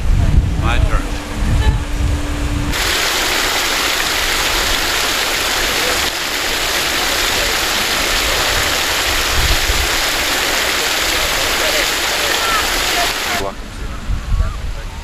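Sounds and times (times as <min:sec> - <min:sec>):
fountain water splashing: 0:02.7 - 0:13.5.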